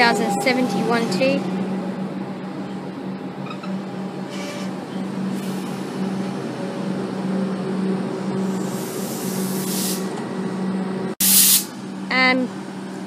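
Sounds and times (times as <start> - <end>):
electric train humming: 0.0 - 13.0
compressed air hisses: 8.5 - 10.1, 11.2 - 11.7.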